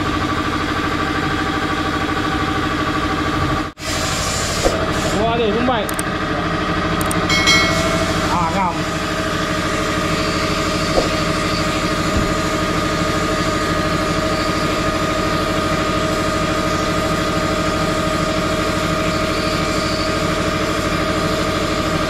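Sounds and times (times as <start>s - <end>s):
air compressor running: 0.0s - 22.0s
sandblasting hiss: 3.8s - 5.2s.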